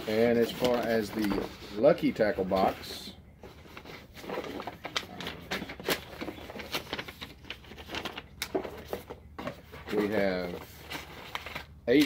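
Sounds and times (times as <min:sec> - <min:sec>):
plastic packages crinkling: 0:00.1 - 0:01.4, 0:04.2 - 0:09.2.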